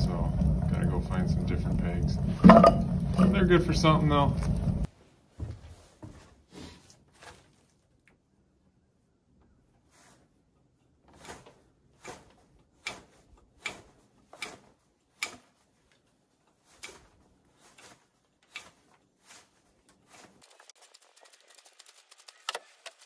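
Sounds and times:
knife whittling wood: 11.1s - 15.7s, 16.6s - 23.0s.

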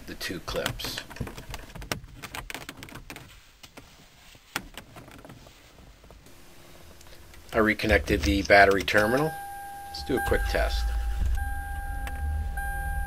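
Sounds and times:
faint steady hum: 6.2s - 13.0s.

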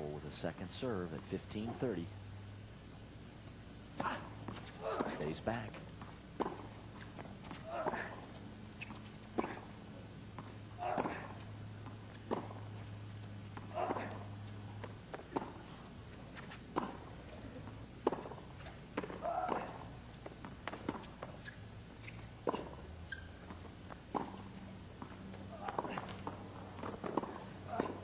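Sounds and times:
racket hitting tennis ball: 3.9s - 17.3s, 18.0s - 23.2s, 23.9s - 28.0s
player grunting: 4.8s - 5.5s.

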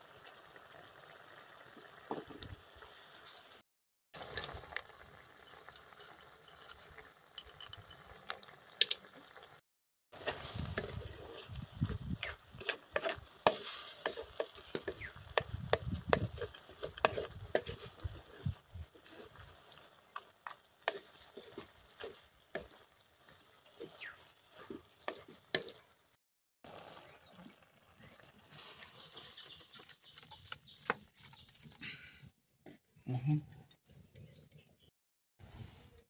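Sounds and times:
wooden spatula stirring wet greens: 10.2s - 25.9s
wood knocking and scraping clay: 12.2s - 18.1s.

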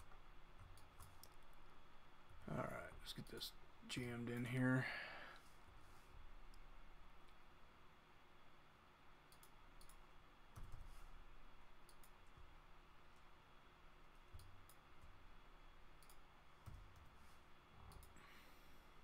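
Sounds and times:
faint room hum: 0.0s - 19.0s
computer mouse clicks: 9.3s - 10.9s, 11.8s - 12.5s, 14.3s - 15.2s, 16.0s - 17.2s, 17.8s - 18.2s.

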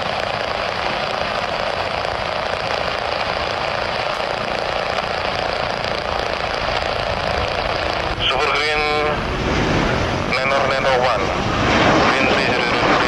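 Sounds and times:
jet engines roaring at takeoff: 0.0s - 13.0s.

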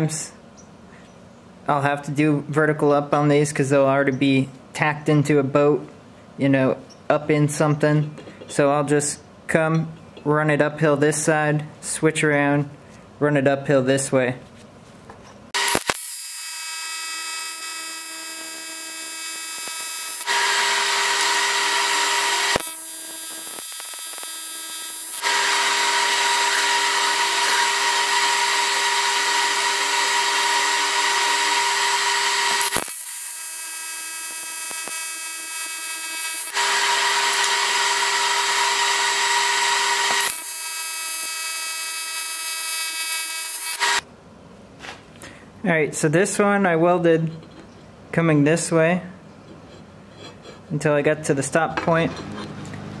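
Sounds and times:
welding arc buzzing: 15.5s - 44.1s.

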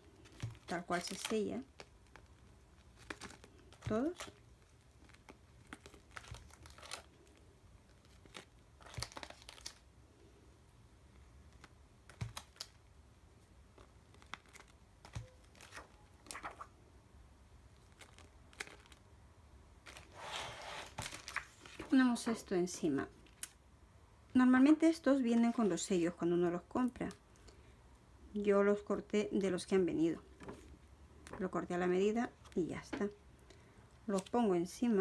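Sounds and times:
plastic sleeves crinkling: 0.0s - 9.9s, 11.1s - 16.8s, 17.7s - 22.5s.

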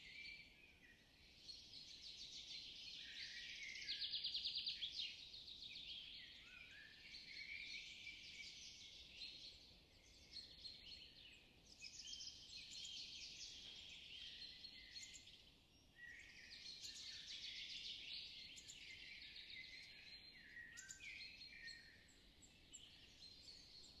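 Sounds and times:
faint songbirds chirping: 0.0s - 24.0s.

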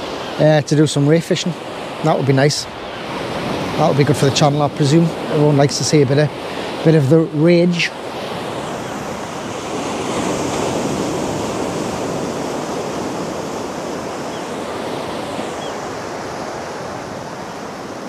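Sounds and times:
surf washing onto beach: 0.0s - 18.0s.

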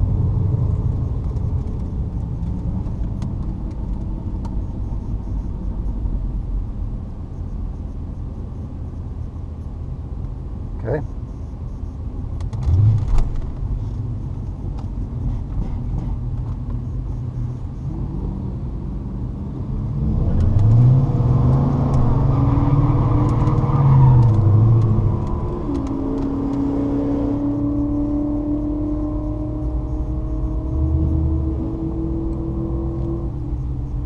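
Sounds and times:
engine revving: 19.8s - 34.0s.

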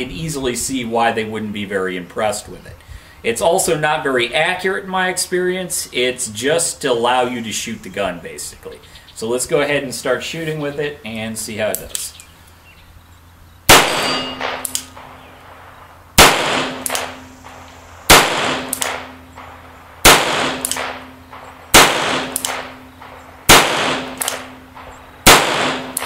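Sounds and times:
revolver gunshots: 13.7s - 26.0s.

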